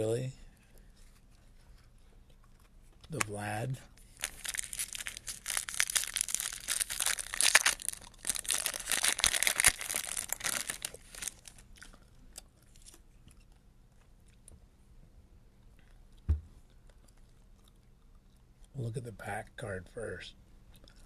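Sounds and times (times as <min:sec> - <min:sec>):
foil wrapper tearing and crinkling: 0:04.1 - 0:11.6
low thump: 0:16.3 - 0:16.5.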